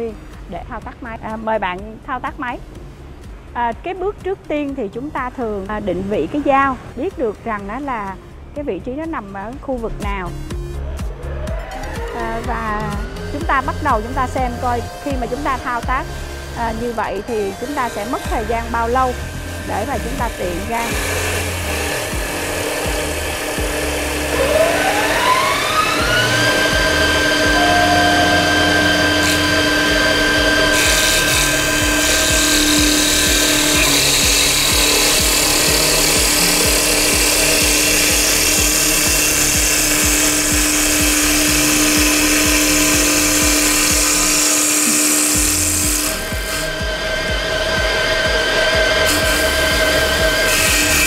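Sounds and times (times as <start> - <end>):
lathe machine whine: 11.2 - 51.0
cutters shaving wood hiss: 13.1 - 51.0.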